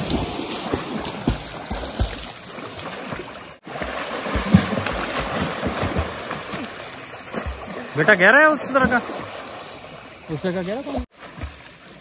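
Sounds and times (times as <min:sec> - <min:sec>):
swimmers splashing in water: 0:00.0 - 0:12.0.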